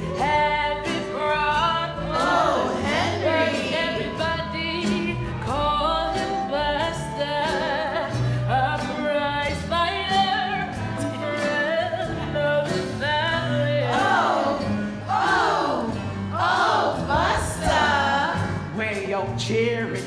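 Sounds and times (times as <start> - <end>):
band with repeating bass line: 0.0 - 8.5, 10.7 - 20.0
cast singing: 13.8 - 18.8.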